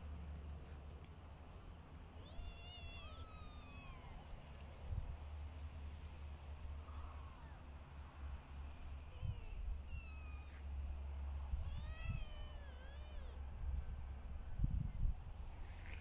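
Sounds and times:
kittens mewing: 0:02.2 - 0:04.3, 0:09.0 - 0:10.6, 0:11.6 - 0:13.4.

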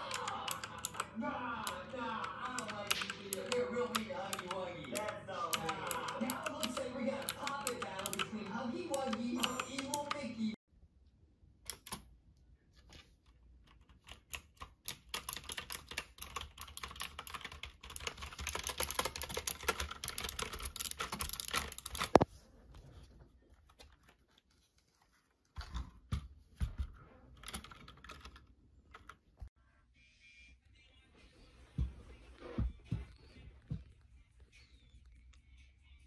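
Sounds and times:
clicky mechanical keyboard typing: 0:00.0 - 0:10.3, 0:13.7 - 0:22.2, 0:27.4 - 0:29.2.

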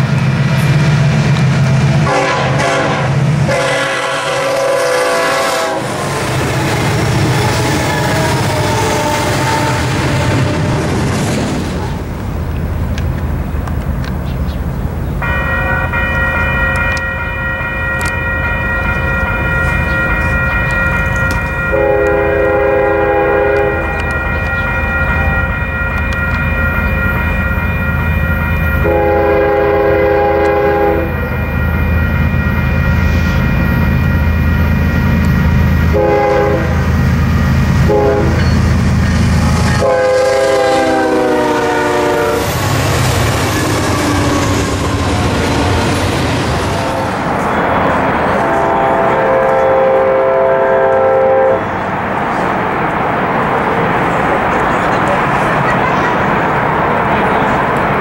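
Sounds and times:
diesel locomotives rumbling: 0:00.0 - 0:58.0
locomotive air horn blasts: 0:02.0 - 0:06.1, 0:07.4 - 0:10.8, 0:15.2 - 0:16.2, 0:21.6 - 0:25.5, 0:28.8 - 0:31.4, 0:35.9 - 0:36.9, 0:37.8 - 0:38.6, 0:39.7 - 0:42.6, 0:48.3 - 0:51.7
high whine: 0:14.7 - 0:50.4.

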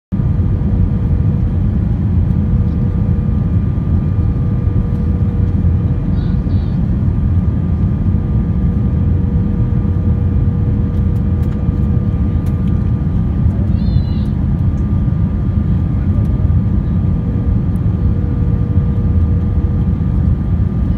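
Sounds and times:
jet cabin engine rumble: 0:00.2 - 0:20.9
steady hum: 0:00.2 - 0:20.9.

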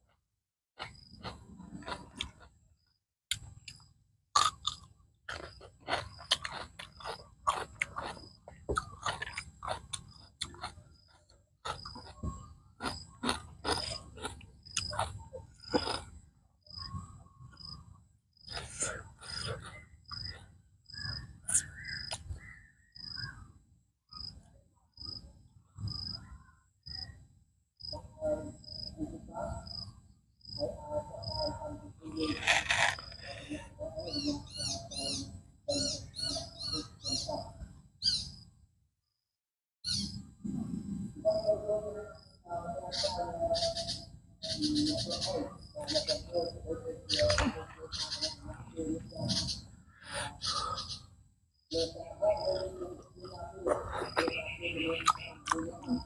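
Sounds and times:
man chewing and crunching: 0:00.8 - 0:02.6, 0:03.3 - 0:22.4, 0:32.3 - 0:33.5, 0:53.7 - 0:56.0.

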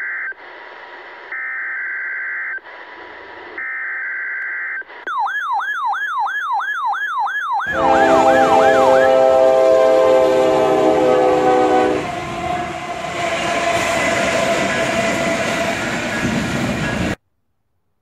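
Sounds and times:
static hiss: 0:02.6 - 0:03.6
rising and falling siren wail: 0:05.1 - 0:15.9
locomotive horn: 0:07.6 - 0:16.0
train rumble: 0:07.7 - 0:17.2.

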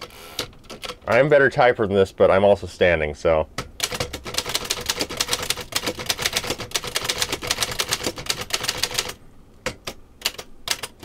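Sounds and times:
typewriter keys clacking: 0:03.8 - 0:11.0.

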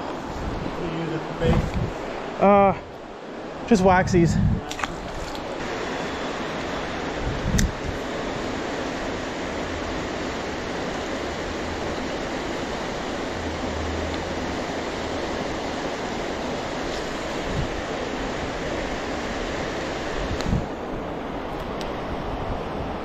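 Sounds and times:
creek rushing: 0:00.0 - 0:23.0.

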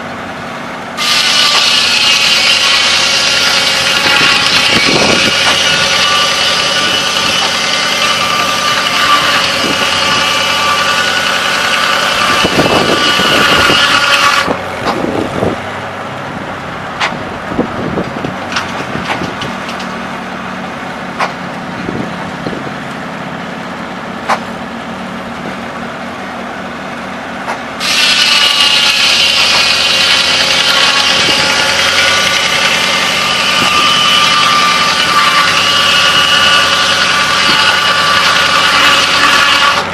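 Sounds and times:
engine running: 0:00.0 - 0:39.9
saw blade screaming through log: 0:01.0 - 0:15.2, 0:27.8 - 0:39.9.

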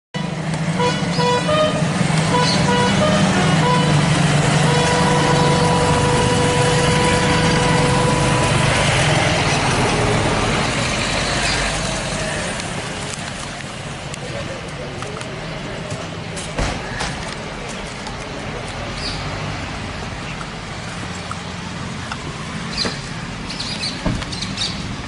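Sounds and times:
short horn toots: 0:00.2 - 0:08.9
long steady horn note: 0:00.2 - 0:09.5.

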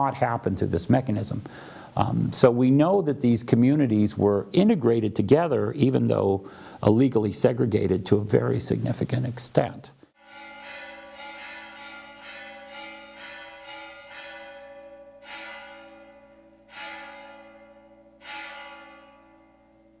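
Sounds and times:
bell ringing: 0:10.2 - 0:20.0.

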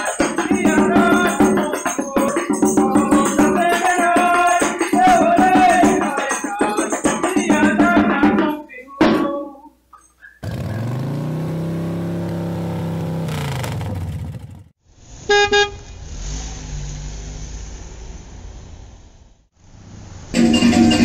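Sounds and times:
car horn toots: 0:15.3 - 0:15.9.

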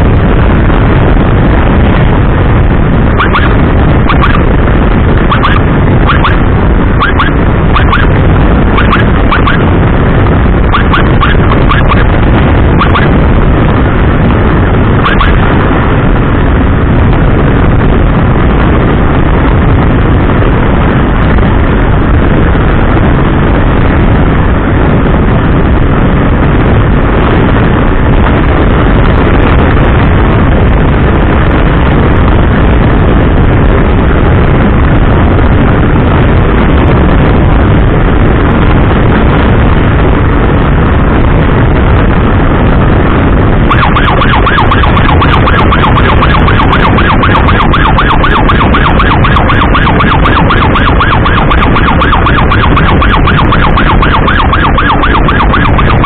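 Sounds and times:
electronic emergency siren: 0:00.0 - 0:19.8, 0:41.6 - 0:56.0
wind rush: 0:00.0 - 0:56.0.

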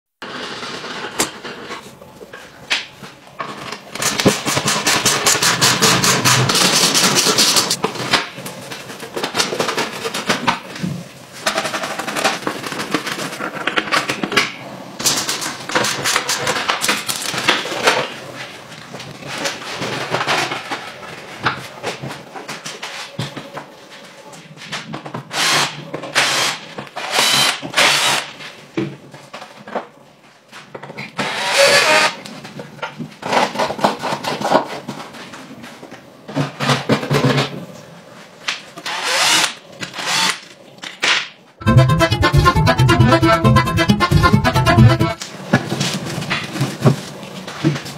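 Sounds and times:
cordless drill boring: 0:26.3 - 0:28.2, 0:38.9 - 0:40.4.

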